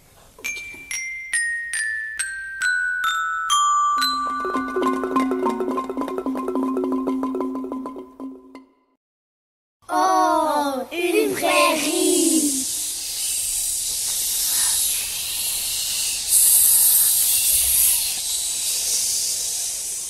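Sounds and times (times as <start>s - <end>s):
children making swishing hiss: 11.0s - 20.0s.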